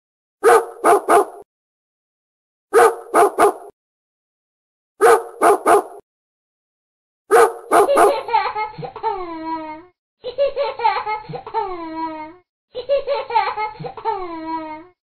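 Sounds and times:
dog barking: 0.4 - 1.4, 2.7 - 3.7, 5.0 - 6.0, 7.3 - 8.3.

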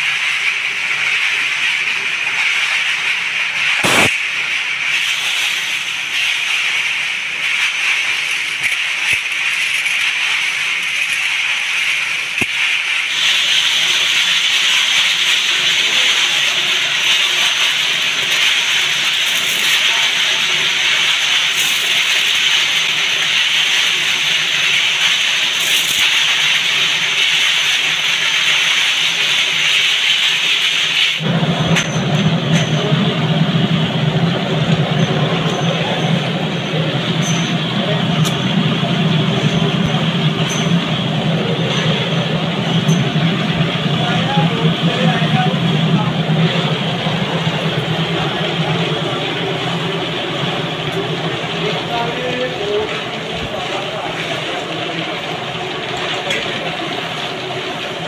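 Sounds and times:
spin dryer whirring: 0.0 - 58.0
sharp knock: 3.8 - 4.2.

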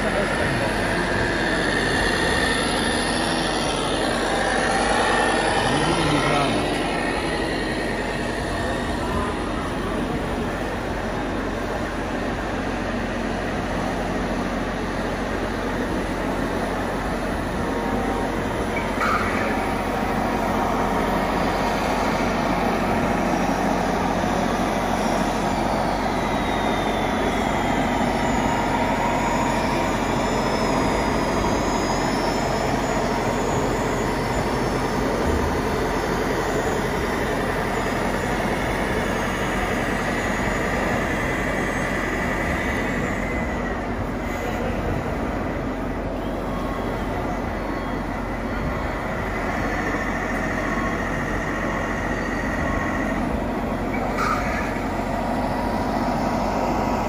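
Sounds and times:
electric motor whines: 0.0 - 10.6
steady background din: 0.0 - 57.0.

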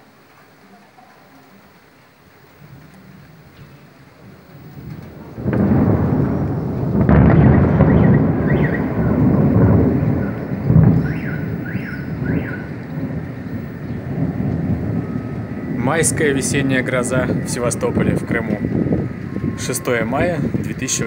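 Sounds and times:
light rain hissing: 0.0 - 21.0
thunder rumbling: 1.6 - 21.0
sharp thunder clap: 4.2 - 21.0.

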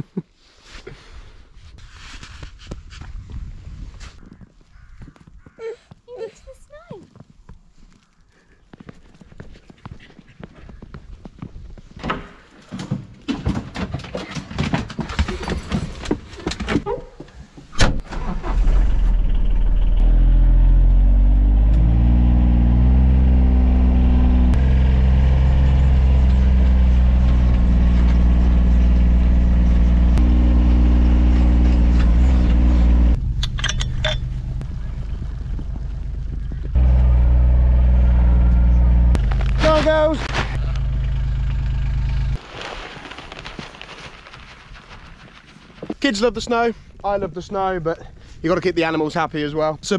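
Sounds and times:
diesel engine starting and running: 18.0 - 42.4.

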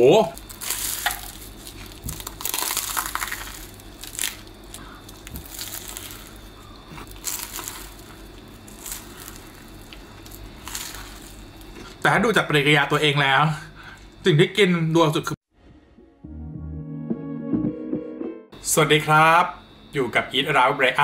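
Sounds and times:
croissant crust crunching: 0.0 - 12.0.

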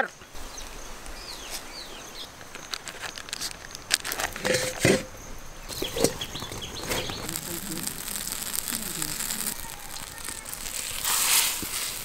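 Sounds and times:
faint birds chirping: 0.0 - 4.1, 5.0 - 11.0
handling noise: 2.2 - 12.0
plastic wrapper crinkling: 2.5 - 4.6, 5.7 - 12.0.

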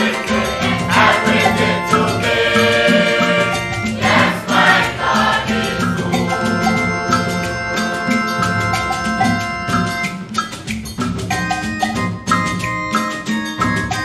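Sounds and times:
repeating bass line: 0.0 - 10.0
held chords: 0.0 - 13.1
steady percussion beat: 0.0 - 14.0.

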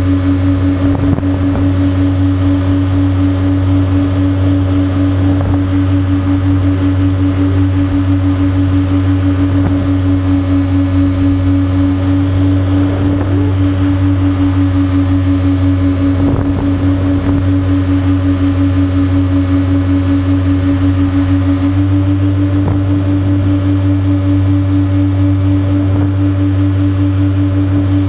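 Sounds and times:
airflow noise: 0.0 - 28.0
pulsing electric motor hum: 0.0 - 28.0.

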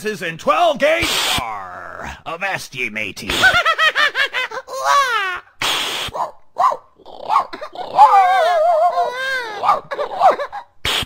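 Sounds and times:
imitated dog whine: 6.1 - 10.7
imitated dog yips and barks: 6.1 - 10.7.

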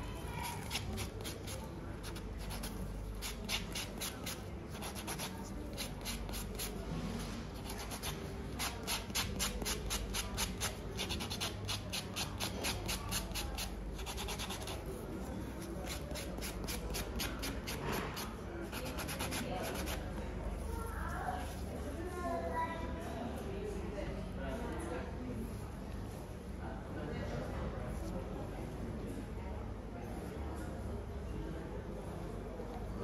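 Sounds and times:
nail file rubbing fingernails: 0.5 - 6.7, 7.6 - 14.8, 15.8 - 20.0.

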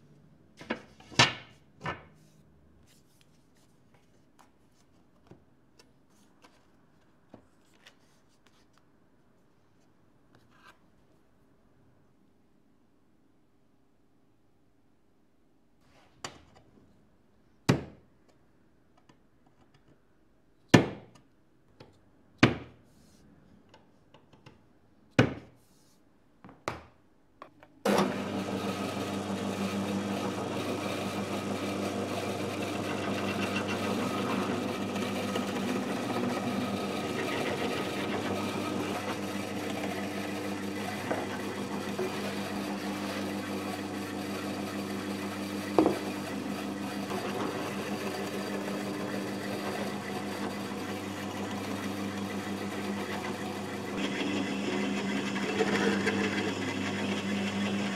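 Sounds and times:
pillar drill drilling wood: 27.9 - 57.9.

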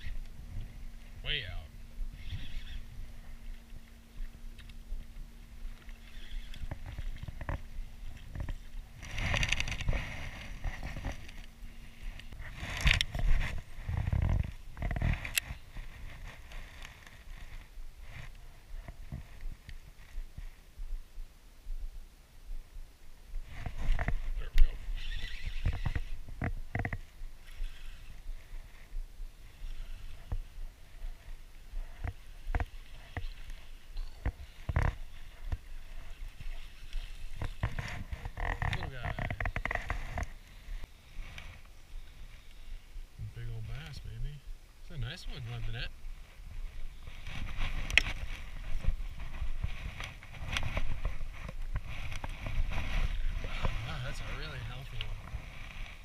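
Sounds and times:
low steady rumble: 0.0 - 25.1
wind rumble on microphone: 0.0 - 56.0.

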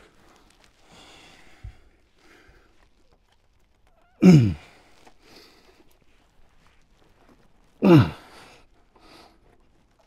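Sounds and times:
faint handling noises: 0.0 - 7.8, 8.4 - 10.0
man grunting with effort: 4.2 - 4.6, 7.8 - 8.3.

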